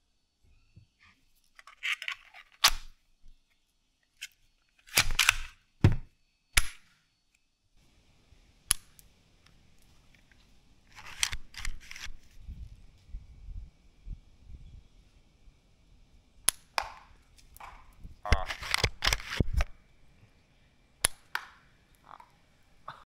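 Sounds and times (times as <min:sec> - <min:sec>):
plastic toy gun clicks and snaps: 0:01.6 - 0:02.9, 0:04.2 - 0:05.6, 0:06.6 - 0:06.9, 0:08.7 - 0:09.1, 0:16.4 - 0:19.7, 0:21.0 - 0:21.6.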